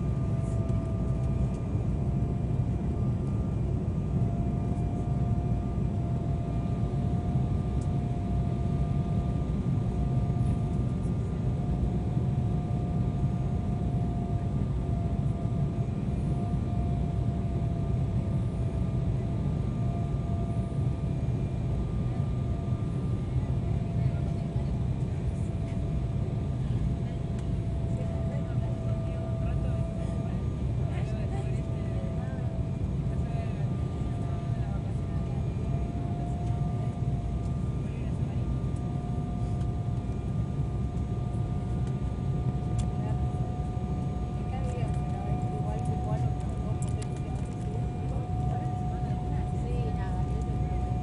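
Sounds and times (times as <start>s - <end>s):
airliner cabin rumble: 0.0s - 51.0s
thin steady whine: 27.4s - 51.0s.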